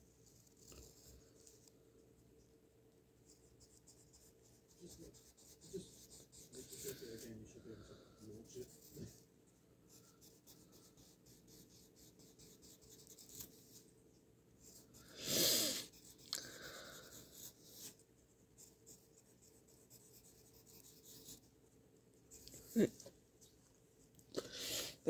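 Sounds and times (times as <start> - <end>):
pencil scratching on paper: 0.2 - 1.7, 3.2 - 9.3, 9.9 - 14.0, 14.6 - 22.9.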